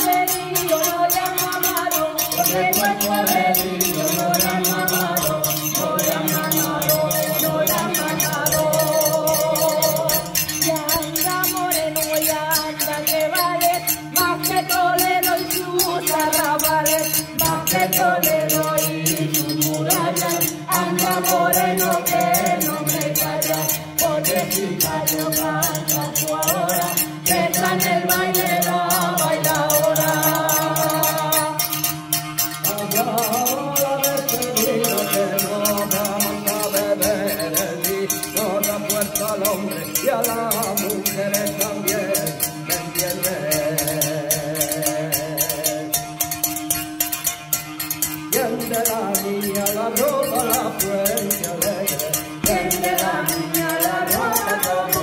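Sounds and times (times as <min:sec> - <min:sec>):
voices singing together: 0:00.0 - 0:46.3, 0:48.3 - 0:55.0
fast scraping rattle: 0:00.0 - 0:55.0.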